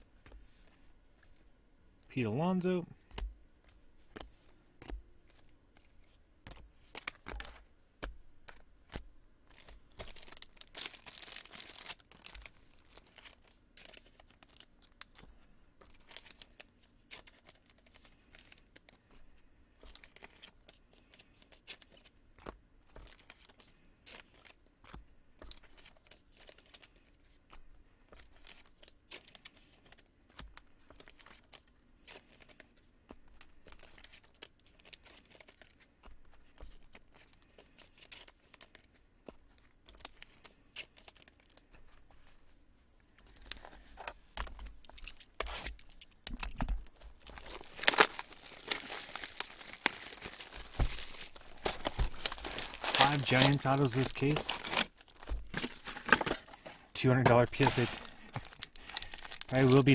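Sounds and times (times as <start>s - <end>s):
foil wrappers crinkling: 9.5s - 19.2s, 28.1s - 39.0s, 43.2s - 59.9s.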